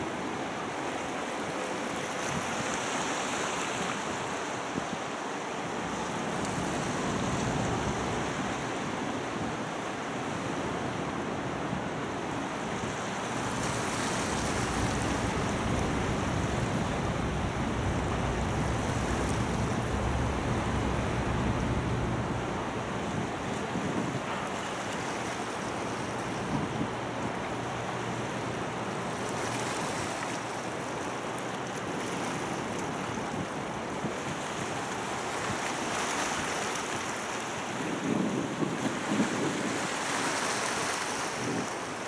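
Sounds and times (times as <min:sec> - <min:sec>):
wind on microphone: 0:05.6 - 0:30.3, 0:37.6 - 0:41.8
boat engine rumble: 0:05.6 - 0:37.4
water washing: 0:12.6 - 0:26.4.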